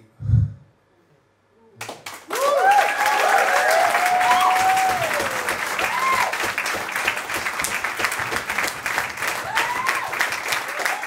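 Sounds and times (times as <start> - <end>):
audience applauding and cheering: 1.8 - 11.0
whoops: 2.3 - 6.4, 9.4 - 11.0.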